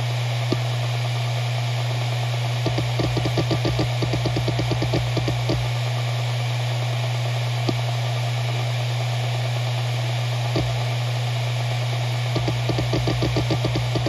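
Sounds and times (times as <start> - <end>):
hard drive spinning hum: 0.0 - 14.0
hard drive seek ticks: 2.6 - 5.8, 7.6 - 7.8, 10.5 - 10.9, 12.3 - 14.0.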